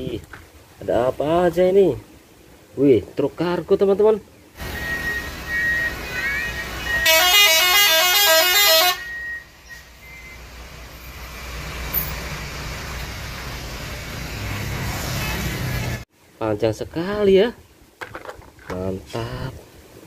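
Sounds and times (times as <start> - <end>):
diesel truck engine: 4.6 - 16.1
musical multi-tone truck horn: 6.9 - 9.9.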